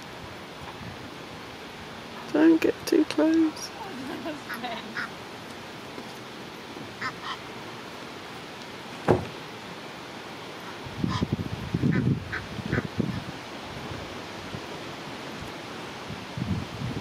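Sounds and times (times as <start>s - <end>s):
geese hoarse calls: 3.7s - 5.2s, 6.9s - 7.6s, 10.6s - 13.2s
sharp knock: 9.0s - 9.3s.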